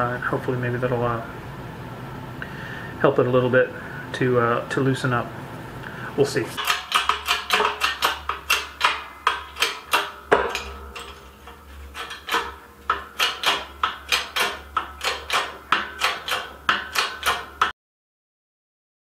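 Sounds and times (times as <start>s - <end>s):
hammer tapping on metal spindle: 6.6s - 17.7s.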